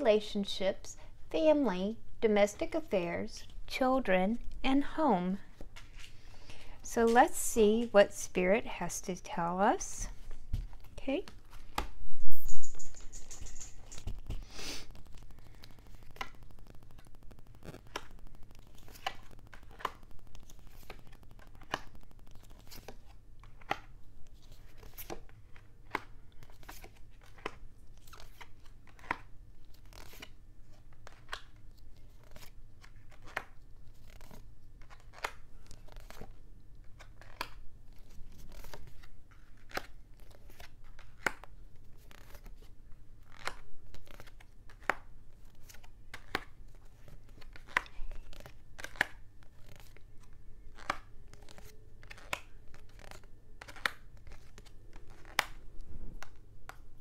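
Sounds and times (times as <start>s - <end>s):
faint low hum: 0.0s - 57.0s
cards snapping and tapping: 43.3s - 46.5s, 47.3s - 50.0s, 50.8s - 55.6s.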